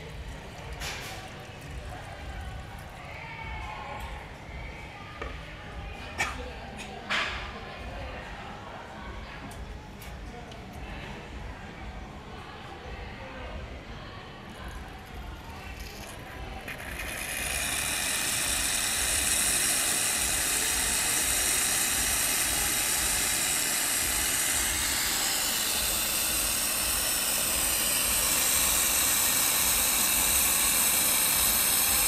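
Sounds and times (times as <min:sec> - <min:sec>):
espresso machine steam hiss: 0:14.6 - 0:32.0.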